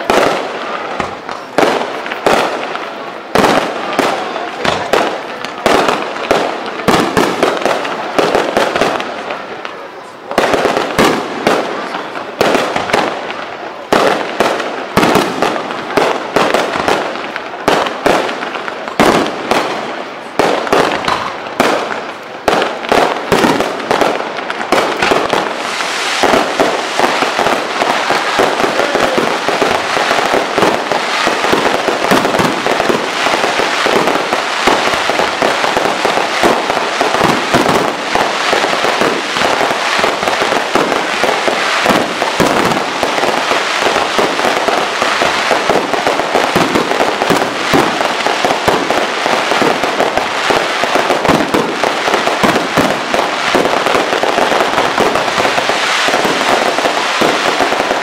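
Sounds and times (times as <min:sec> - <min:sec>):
fireworks bangs and crackle: 0:00.0 - 0:58.0.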